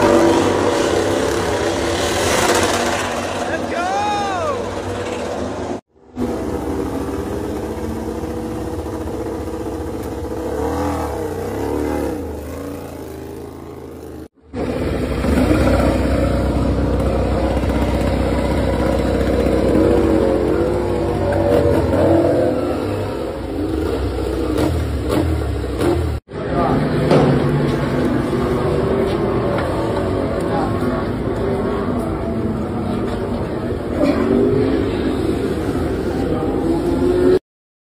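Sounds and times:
race bike engines revving: 0.0s - 37.4s.

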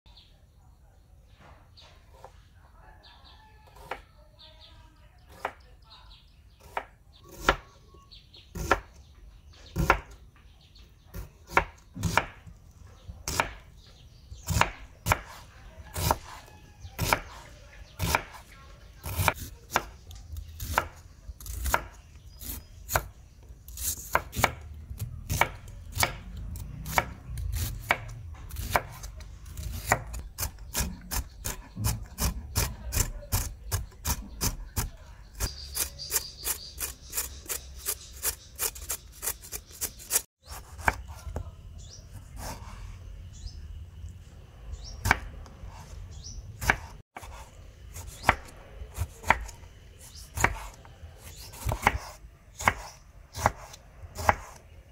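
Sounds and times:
knife slicing onions on board: 23.7s - 41.4s, 46.6s - 54.7s.

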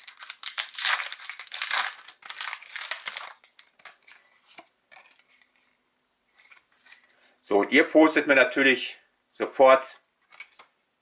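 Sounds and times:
foil wrapper crinkling: 0.0s - 4.2s
cards rustling: 0.0s - 5.7s.

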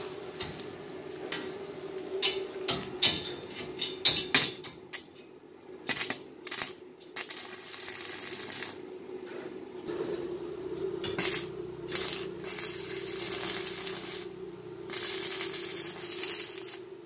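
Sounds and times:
steady hum: 0.0s - 17.0s
welding arc sizzling: 5.8s - 8.9s, 10.6s - 17.0s
welding arc crackling: 5.9s - 8.9s, 11.0s - 17.0s.

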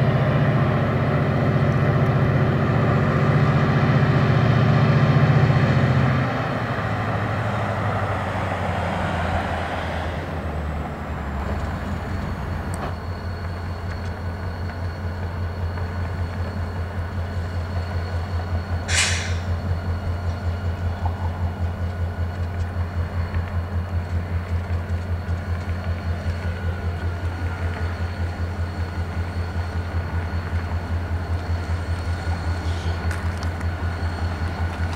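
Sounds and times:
diesel locomotive engines throbbing: 0.0s - 34.9s
brief sharp noise: 18.9s - 19.5s.

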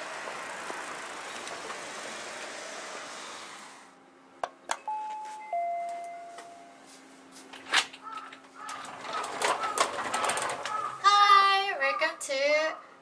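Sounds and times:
city street noise: 0.0s - 4.2s
two-tone doorbell chime: 4.8s - 6.9s.

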